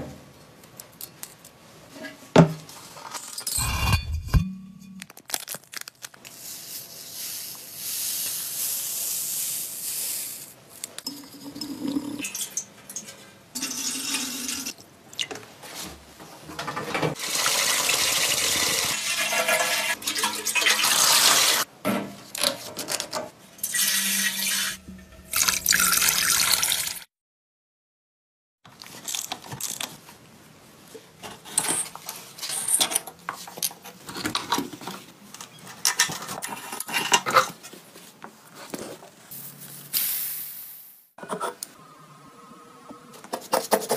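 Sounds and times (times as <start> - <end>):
water pouring and running: 17.2 - 21.7, 23.7 - 27.1.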